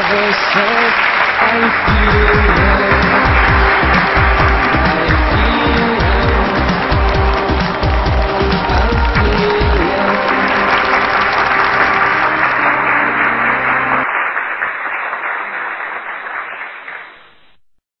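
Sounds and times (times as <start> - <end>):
audience applauding: 0.0 - 17.4
held music chord: 1.7 - 14.1.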